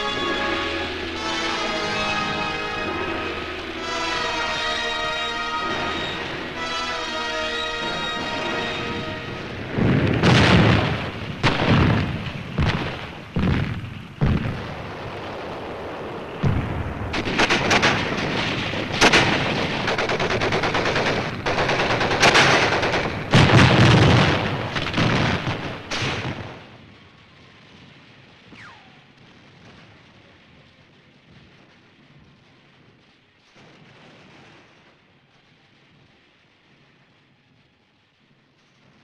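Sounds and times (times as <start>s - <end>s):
heavy explosion booms: 0.0s - 32.3s
rifle and machine-gun fire: 9.6s - 26.7s.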